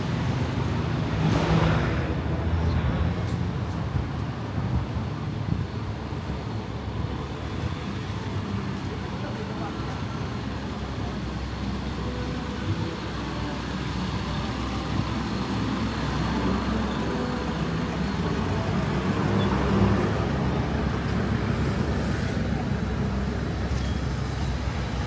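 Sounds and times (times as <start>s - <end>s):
street traffic: 0.0s - 25.0s.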